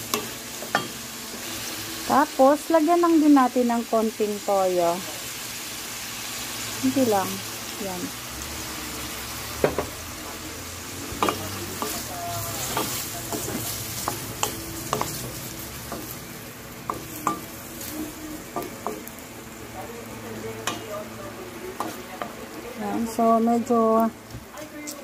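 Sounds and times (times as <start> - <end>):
meat sizzling in a pan: 0.0 - 25.0
spatula knocking and scraping pan: 11.1 - 16.2.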